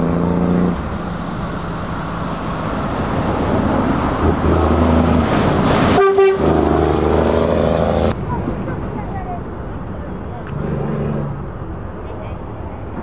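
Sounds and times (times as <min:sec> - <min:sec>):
truck horn toot: 0:05.9 - 0:06.8.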